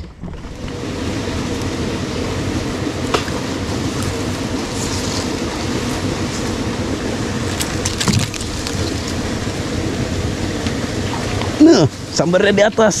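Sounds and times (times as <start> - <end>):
fishing boat engine rumbling: 0.0 - 13.0.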